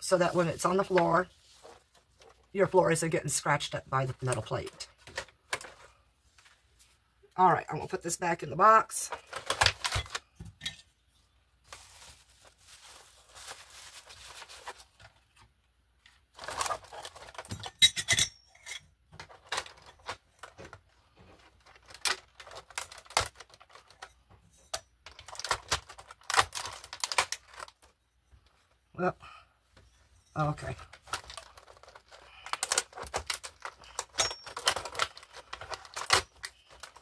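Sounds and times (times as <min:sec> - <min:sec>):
plastic wrap rustling: 0:00.0 - 0:02.5, 0:11.6 - 0:15.4, 0:16.2 - 0:17.7, 0:19.2 - 0:24.1, 0:25.1 - 0:28.6, 0:30.4 - 0:37.0
metal parts clicking and clunking: 0:30.9 - 0:37.0.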